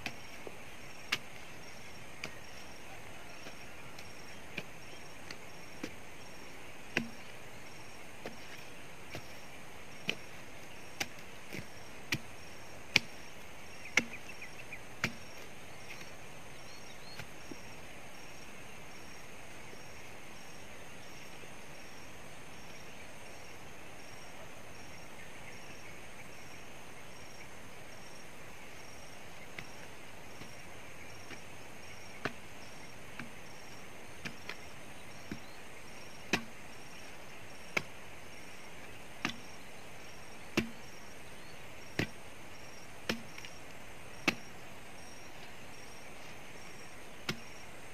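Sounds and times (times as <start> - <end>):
hand tool chopping tree stump: 0.0 - 6.0, 6.8 - 7.4, 8.2 - 16.1, 29.6 - 35.6, 36.2 - 38.1, 38.8 - 39.6, 40.4 - 41.0, 41.8 - 42.2, 43.0 - 44.7, 47.2 - 47.6.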